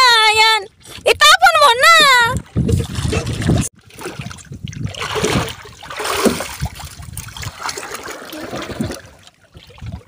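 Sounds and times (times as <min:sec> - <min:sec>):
water splashing against boat: 0:00.4 - 0:10.0.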